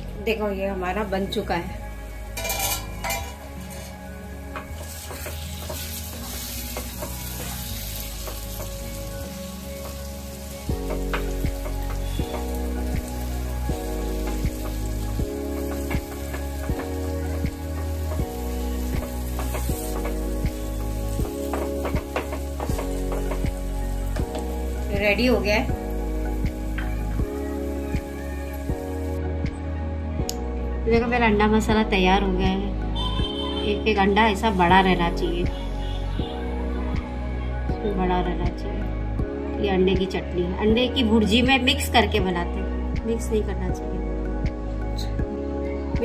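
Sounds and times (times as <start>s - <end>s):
music with steady beat: 2.3s - 30.5s, 35.4s - 37.8s, 42.9s - 46.0s
spatula scraping pan: 2.4s - 4.0s
spatula stirring and scraping: 2.4s - 4.0s, 4.8s - 8.8s
food sizzling in a pan: 4.7s - 29.2s.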